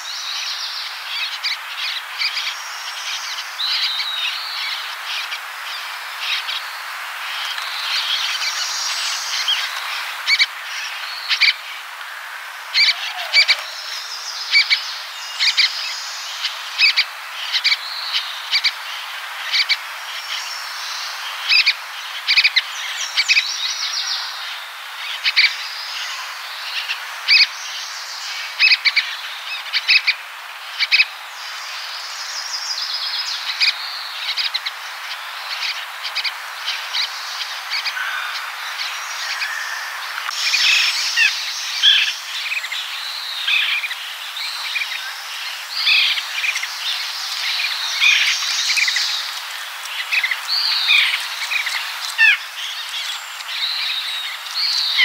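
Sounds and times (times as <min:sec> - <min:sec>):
nuthatch calling: 0:12.7 - 0:14.8, 0:35.5 - 0:55.0
distant birds: 0:31.4 - 0:55.0.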